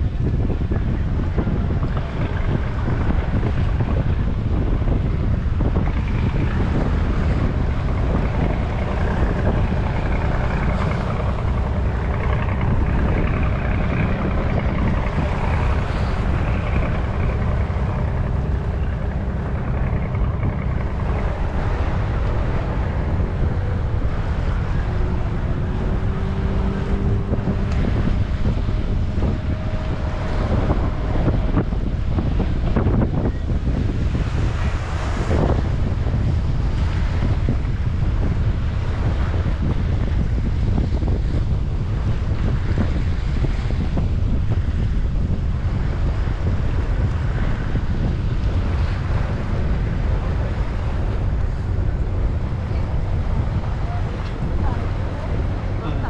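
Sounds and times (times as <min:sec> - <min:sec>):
ship rumble: 0:00.0 - 0:56.0
water rushing along hull: 0:00.0 - 0:56.0
wind buffeting microphone: 0:00.0 - 0:56.0
faint thin engine tones: 0:01.8 - 0:45.0.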